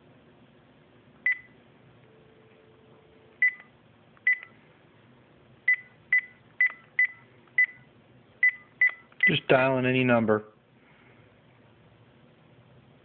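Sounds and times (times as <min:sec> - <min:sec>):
phone keypad beeps: 0:01.3 - 0:01.5, 0:03.4 - 0:03.7, 0:04.3 - 0:04.5, 0:05.7 - 0:09.1.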